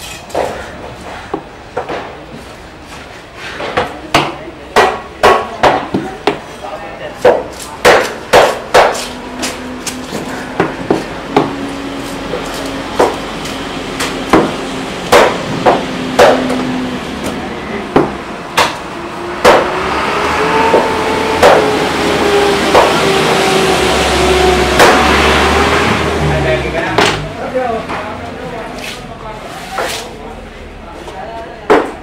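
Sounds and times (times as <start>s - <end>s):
cleaver chopping on wooden block: 7.2s - 9.1s, 14.0s - 16.6s, 19.4s - 19.7s, 20.7s - 21.7s
engine humming: 7.3s - 29.4s.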